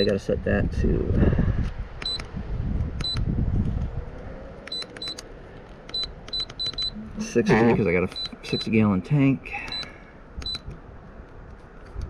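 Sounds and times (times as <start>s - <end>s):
short high keypress beeps: 2.0s - 2.3s, 3.0s - 3.2s, 4.7s - 5.2s, 5.9s - 8.7s, 9.6s - 10.7s.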